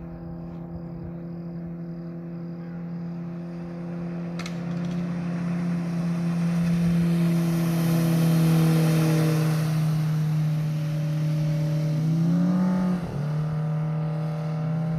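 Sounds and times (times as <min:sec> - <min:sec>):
outboard motor humming: 0:00.0 - 0:14.9
water hissing: 0:05.4 - 0:12.2.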